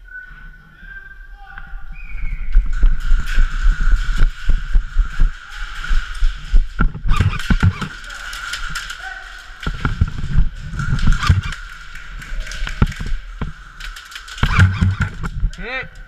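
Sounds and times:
footsteps: 0:01.4 - 0:16.0
sharp clicks: 0:06.1 - 0:16.0.

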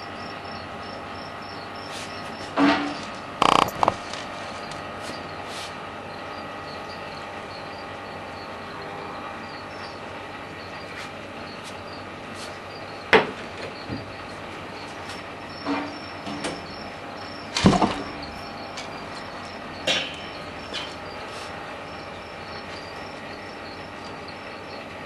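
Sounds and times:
tank background hum: 0:00.0 - 0:25.0.

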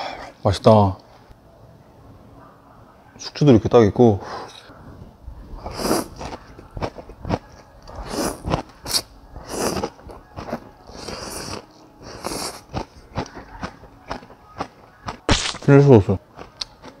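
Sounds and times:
man slurping noodles: 0:05.6 - 0:06.3, 0:07.9 - 0:09.9, 0:10.9 - 0:12.6
chewing: 0:05.6 - 0:15.3, 0:16.3 - 0:17.0.

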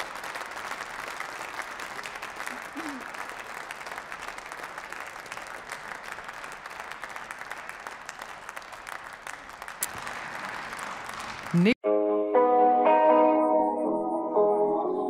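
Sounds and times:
crowd applauding: 0:00.0 - 0:11.8.

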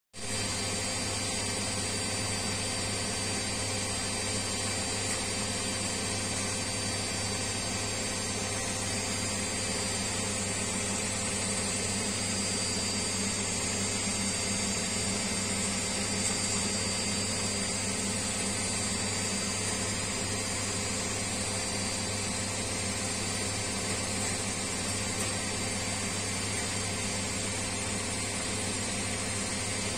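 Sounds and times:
washing machine drum spinning: 0:03.6 - 0:29.9.

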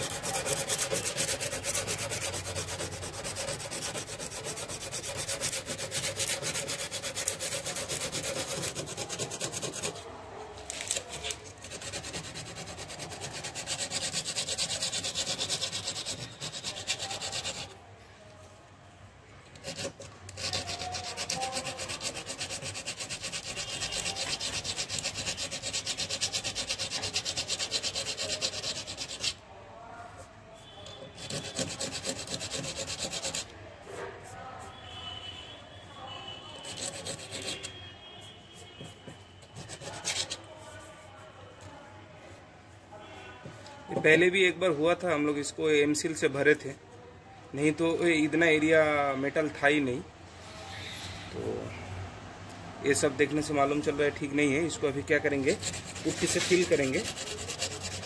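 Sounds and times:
sandpaper scrubbing metal: 0:00.0 - 0:10.0, 0:10.7 - 0:17.8, 0:19.6 - 0:29.4, 0:31.2 - 0:33.5, 0:36.6 - 0:37.8, 0:39.4 - 0:41.0, 0:55.1 - 0:58.0.

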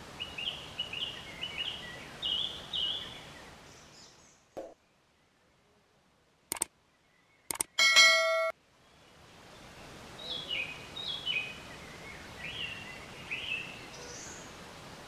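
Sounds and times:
outdoor background noise: 0:00.0 - 0:15.0
short clicks: 0:06.5 - 0:06.7, 0:07.5 - 0:07.8
bright bell-like ding: 0:07.8 - 0:08.5.

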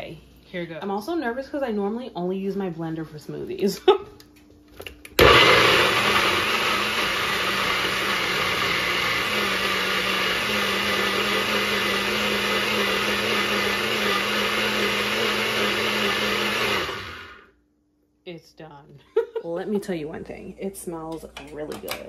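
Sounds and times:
blender running: 0:05.1 - 0:17.6.

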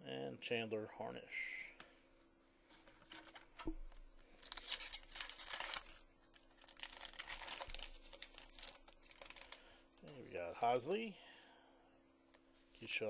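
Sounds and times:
wrapper torn and crinkled: 0:04.3 - 0:09.6.

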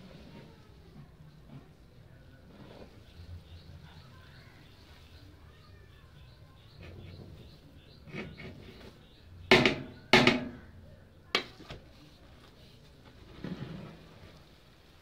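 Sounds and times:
ladle scraping pot: 0:08.0 - 0:08.8
metal ladle clanking on a pot: 0:09.5 - 0:10.6.

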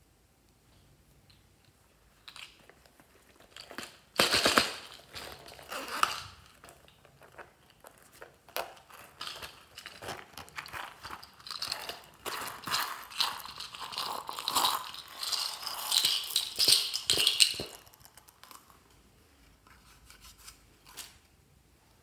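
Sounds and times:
coin purse rustling: 0:02.2 - 0:18.8.

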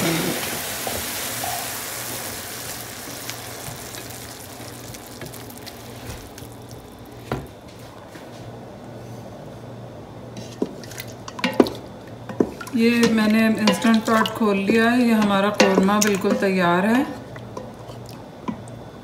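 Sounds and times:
spinach sizzling in a pan: 0:00.0 - 0:07.2.

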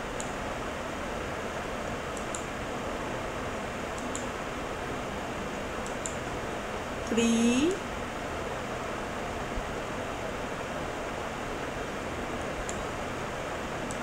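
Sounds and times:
computer mouse clicks: 0:00.2 - 0:00.4, 0:02.2 - 0:02.5, 0:04.0 - 0:04.3, 0:05.8 - 0:06.2.

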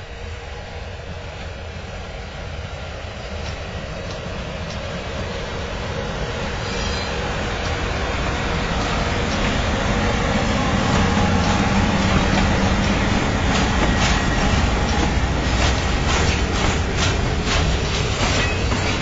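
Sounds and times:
train wheels rumbling on rails: 0:00.0 - 0:19.0
wheel clacks over rail joints: 0:10.9 - 0:19.0.

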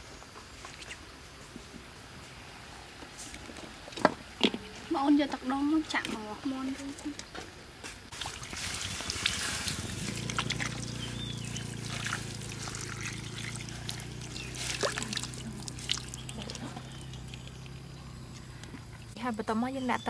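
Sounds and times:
water splashing in hot wok: 0:08.1 - 0:17.3
steady low hum: 0:08.2 - 0:20.0.

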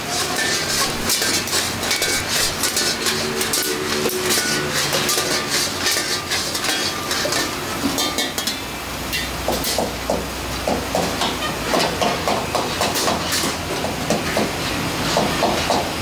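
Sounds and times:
metal tongs clinking on woks: 0:00.0 - 0:09.8
food sizzling in woks: 0:00.0 - 0:16.0
gas burners roaring: 0:00.0 - 0:16.0.

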